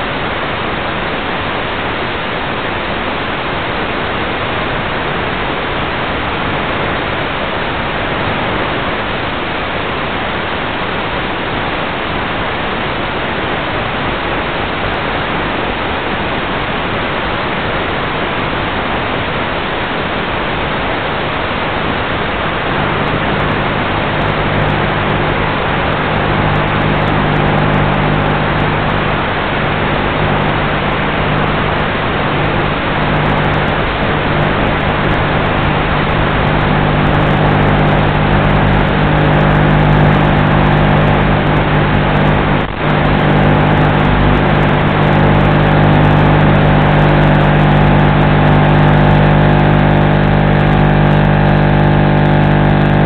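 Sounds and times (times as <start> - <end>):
electric motor and propeller hum: 22.8 - 53.0.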